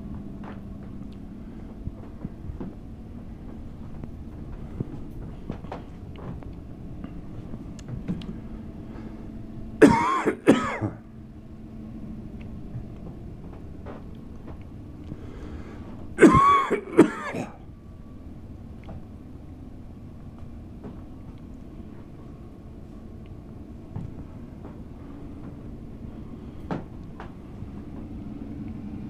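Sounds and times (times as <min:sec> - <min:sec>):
person coughing: 0:09.8 - 0:11.0, 0:16.2 - 0:17.6.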